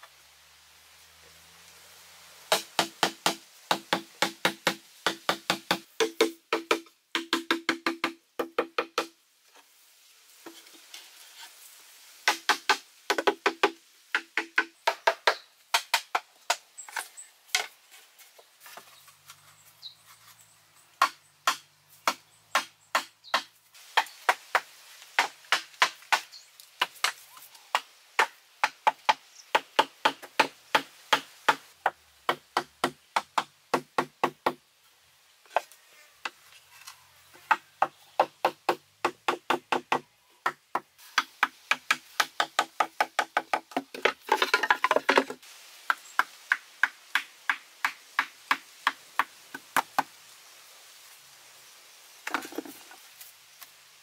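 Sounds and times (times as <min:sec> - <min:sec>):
knife chopping hollow bamboo: 0:02.5 - 0:09.2, 0:21.0 - 0:31.6, 0:32.3 - 0:34.6, 0:37.5 - 0:45.3.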